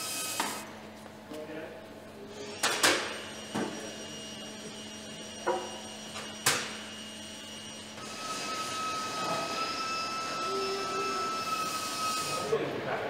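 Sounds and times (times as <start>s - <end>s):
steady high tone: 6.9s - 12.7s.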